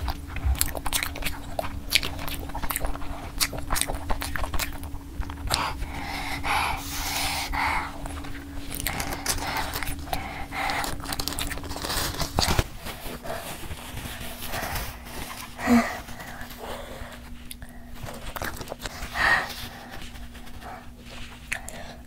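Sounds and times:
woman panting and huffing: 5.6s - 11.0s, 14.2s - 18.0s
tissue rustling: 11.2s - 21.4s.

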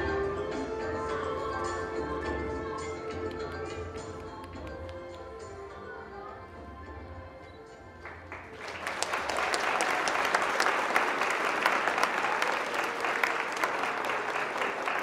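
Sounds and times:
music: 0.0s - 15.0s
audience applause: 8.0s - 15.0s.

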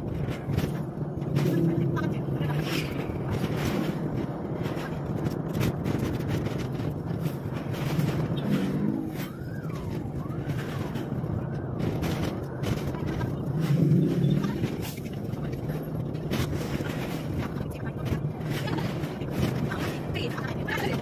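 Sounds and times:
car engine and road noise: 0.0s - 21.0s.

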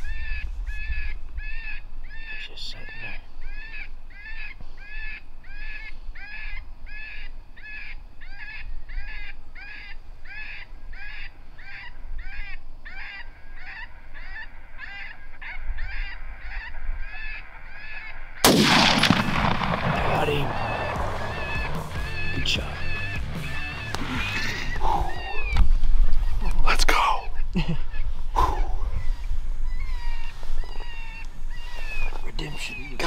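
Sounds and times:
loud rifle shot: 18.4s - 22.0s
predator call squalling cry: 20.0s - 25.6s.

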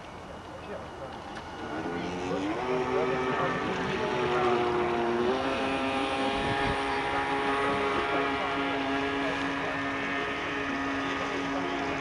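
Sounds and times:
motor droning: 0.7s - 12.0s.

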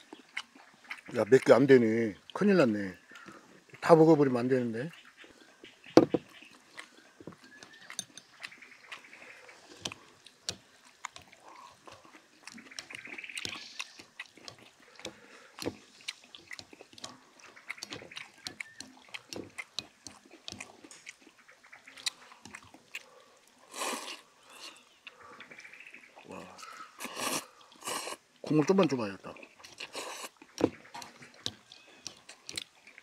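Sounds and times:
chewing: 0.0s - 4.0s, 4.8s - 33.0s
chopsticks clicking on steel bowls: 7.7s - 8.4s
noodle slurp: 22.1s - 24.9s, 27.0s - 28.2s, 29.7s - 30.4s.

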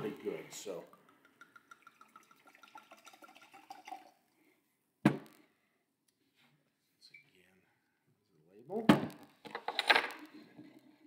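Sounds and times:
wine pouring into glass: 0.9s - 4.4s.

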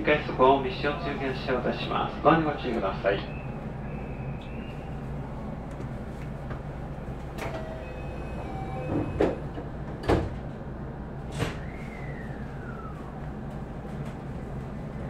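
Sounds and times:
train humming: 0.0s - 15.0s
train doors clunking: 5.7s - 11.8s.

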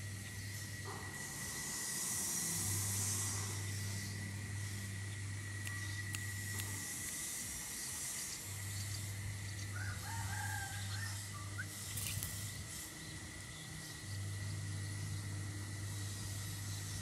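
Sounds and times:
high whine: 0.0s - 17.0s
low hum: 0.0s - 17.0s
wings fluttering: 5.6s - 13.0s
rooster crowing: 9.7s - 11.6s.

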